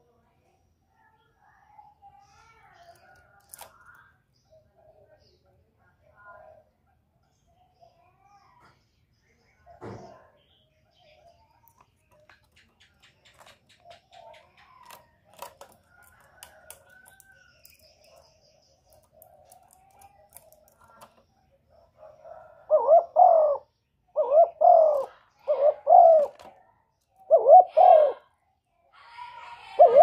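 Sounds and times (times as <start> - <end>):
dove cooing: 21.9 - 26.6, 27.2 - 28.3, 29.8 - 30.0.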